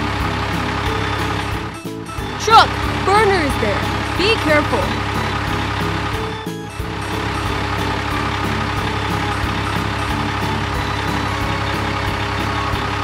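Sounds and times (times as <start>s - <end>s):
cartoon truck engine: 0.0s - 13.0s.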